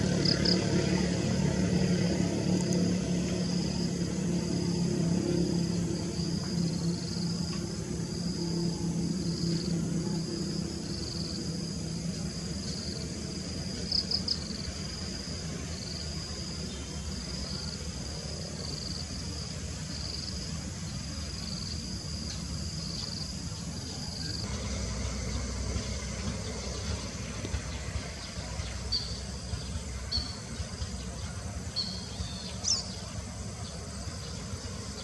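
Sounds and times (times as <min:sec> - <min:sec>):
insects chirring in trills: 0:00.0 - 0:35.0
low background rumble: 0:00.0 - 0:35.0.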